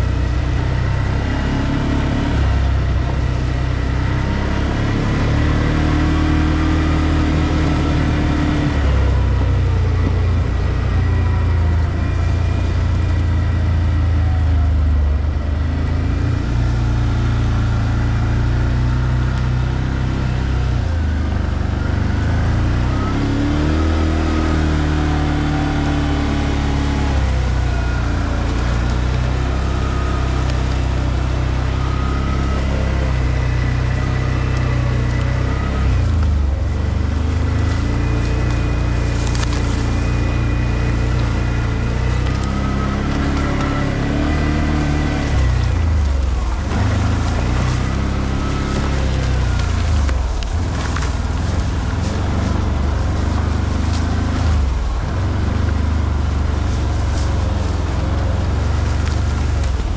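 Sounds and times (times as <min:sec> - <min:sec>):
atv engine revving: 0:00.0 - 0:59.9.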